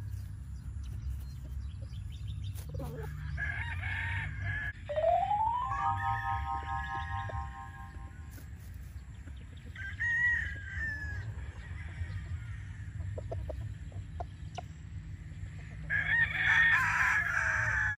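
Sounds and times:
roosters crowing: 0:02.8 - 0:04.8, 0:09.7 - 0:13.0, 0:15.7 - 0:18.0.

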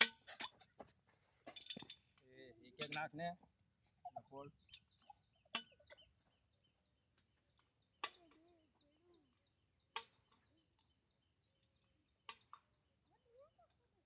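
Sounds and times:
faint bird chirps: 0:03.8 - 0:14.0.

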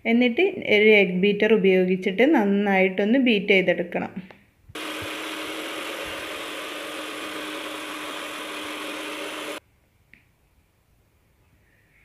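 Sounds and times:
electric hand mixer whisking: 0:04.8 - 0:09.6.

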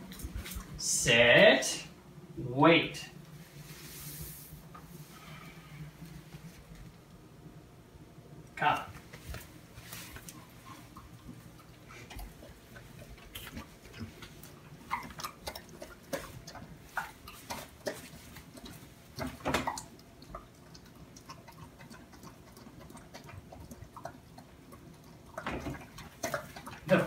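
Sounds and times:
dog chewing and licking: 0:09.2 - 0:27.0.

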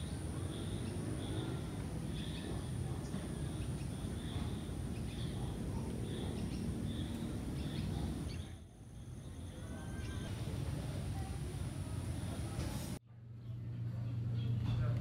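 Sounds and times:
birds chirping: 0:00.0 - 0:12.6.

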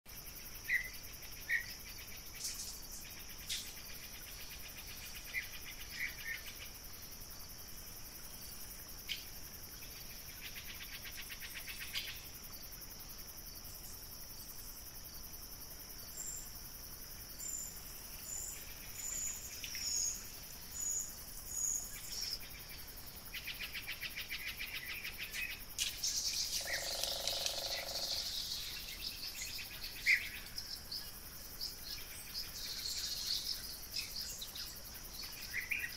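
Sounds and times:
high-pitched insect drone: 0:25.6 - 0:30.9
fast insect trilling: 0:25.8 - 0:29.2.

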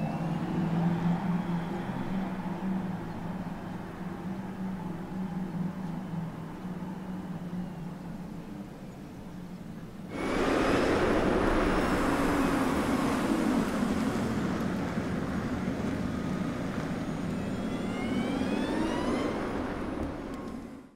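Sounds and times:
tyre and road noise: 0:10.1 - 0:20.9.

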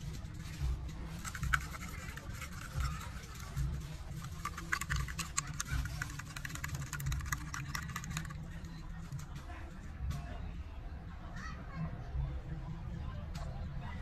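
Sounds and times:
utensil beating egg in glass bowl: 0:01.1 - 0:09.2.

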